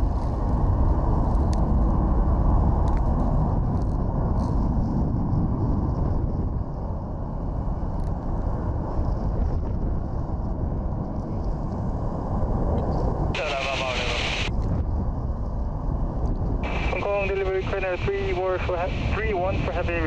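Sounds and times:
distant jet engine noise: 0.0 - 20.0
wind buffeting microphone: 0.0 - 20.0.

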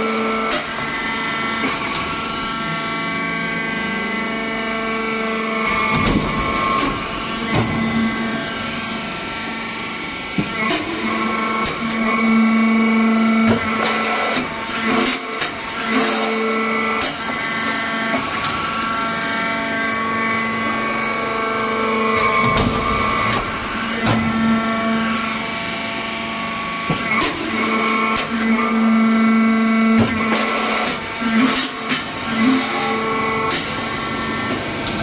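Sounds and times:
machine hum: 0.0 - 35.0.

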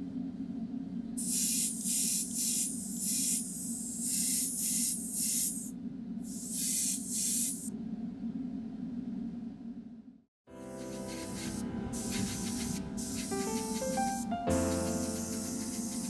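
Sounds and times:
spray paint hissing bursts: 1.2 - 5.7, 6.3 - 7.7, 10.7 - 16.0.

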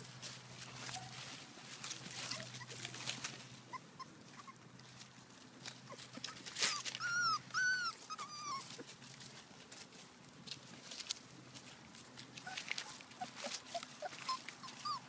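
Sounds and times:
paws rustling in grass and leaves: 0.0 - 15.0
puppy whining yelps: 2.1 - 2.9, 3.7 - 4.6, 5.9 - 8.9, 12.4 - 15.0.

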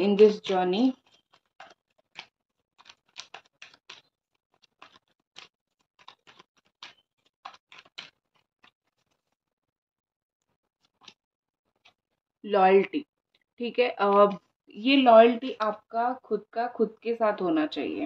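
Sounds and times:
cards being shuffled: 0.0 - 9.4, 10.8 - 12.0.

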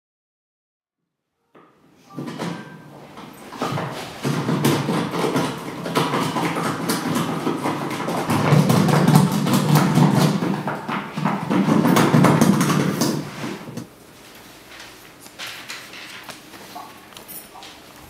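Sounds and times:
paper and plastic bag rustling: 12.8 - 18.0.

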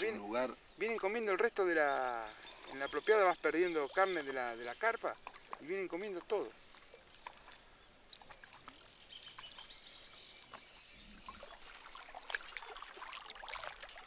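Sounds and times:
water sloshing and trickling: 2.2 - 14.0
small clicks: 11.4 - 14.0.

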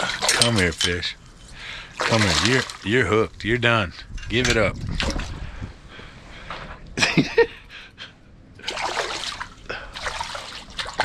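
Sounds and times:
fish splashing at water surface: 2.0 - 2.8, 8.6 - 11.0.

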